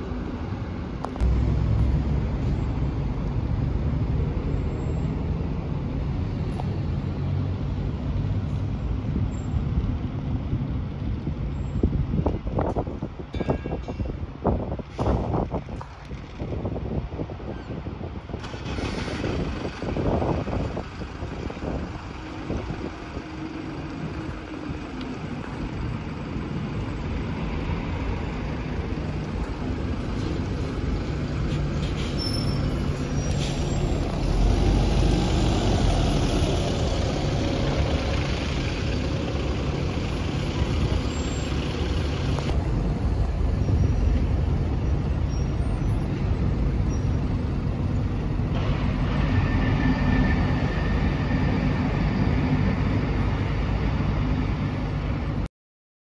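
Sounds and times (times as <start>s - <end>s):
diesel bus engine rumble: 0.0s - 13.3s, 14.0s - 55.5s.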